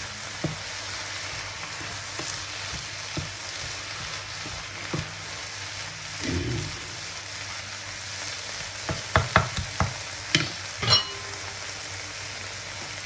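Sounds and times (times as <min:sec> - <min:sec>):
mushrooms sizzling in frying pan: 0:00.0 - 0:13.0
spatula knocking against pan: 0:08.9 - 0:11.3.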